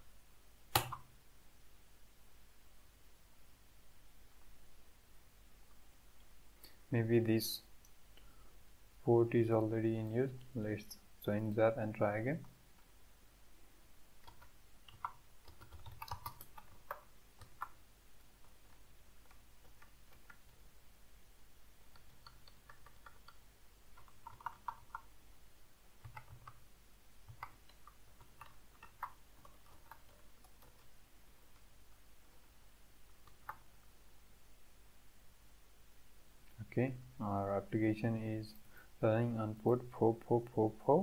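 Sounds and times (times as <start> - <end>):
computer keyboard keystrokes: 14.2 - 17.8, 21.9 - 23.4, 24.0 - 25.1, 26.0 - 26.6, 27.3 - 30.9.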